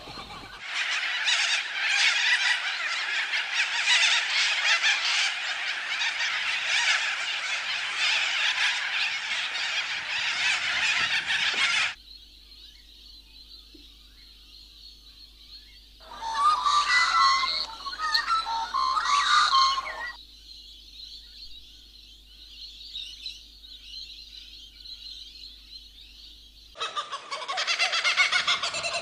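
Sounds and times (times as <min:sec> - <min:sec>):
chattering chorus of animal calls: 0:00.0 - 0:12.0, 0:16.0 - 0:20.2, 0:26.8 - 0:29.0.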